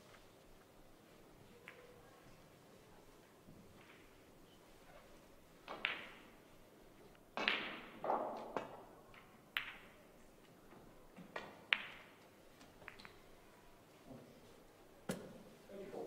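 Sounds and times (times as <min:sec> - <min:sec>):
snooker balls knocking together: 0:05.6 - 0:06.3, 0:07.4 - 0:10.0, 0:11.2 - 0:12.2.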